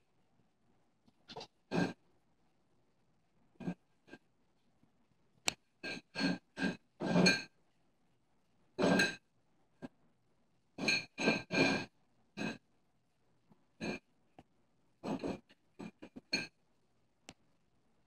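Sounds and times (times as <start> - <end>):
glass scraping across floor: 5.8 - 7.5.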